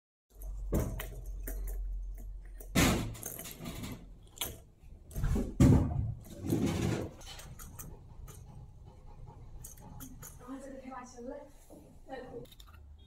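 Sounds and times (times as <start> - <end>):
plastic cat toy clicking and rattling: 0.3 - 4.7, 7.1 - 8.5, 9.6 - 10.6.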